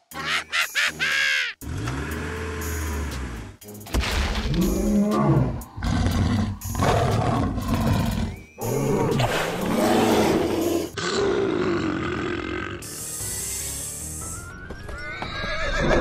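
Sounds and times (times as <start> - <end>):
background music: 0.0 - 16.0
animal roars: 4.5 - 12.8.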